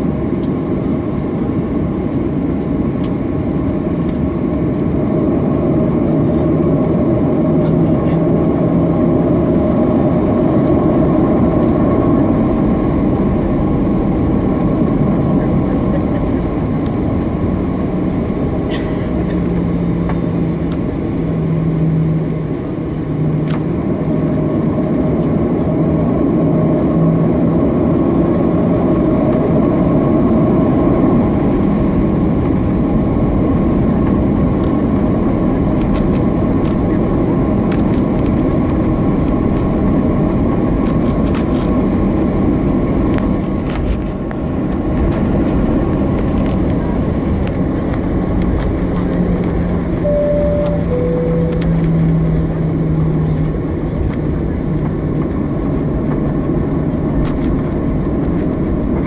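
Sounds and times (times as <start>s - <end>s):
jet engines running: 0.0s - 59.0s
cabin rumble: 13.4s - 21.7s
low hum: 47.6s - 56.5s.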